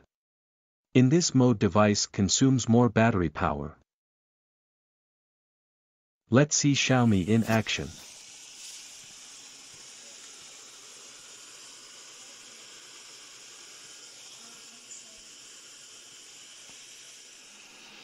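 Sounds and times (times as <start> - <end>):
robot vacuum hissing: 6.8 - 18.0.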